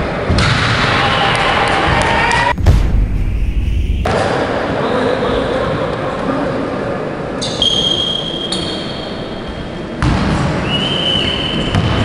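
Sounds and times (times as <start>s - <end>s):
sudden thud: 2.5s - 4.2s.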